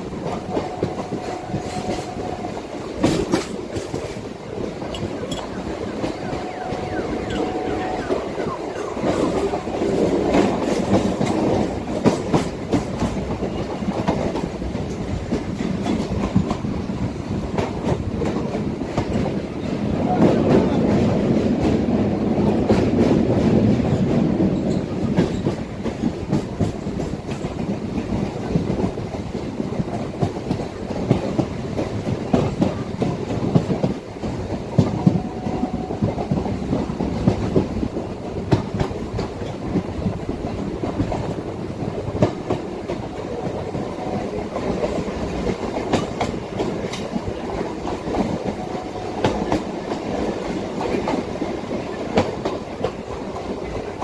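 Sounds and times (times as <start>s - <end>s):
wheels clicking over rail joints: 0.0s - 6.3s, 22.5s - 54.0s
train rumble on board: 0.0s - 54.0s.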